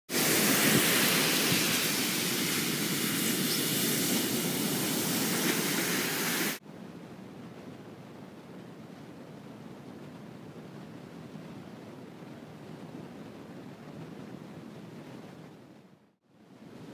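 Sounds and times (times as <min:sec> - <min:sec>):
ocean surf breaking on beach: 0:00.1 - 0:06.6.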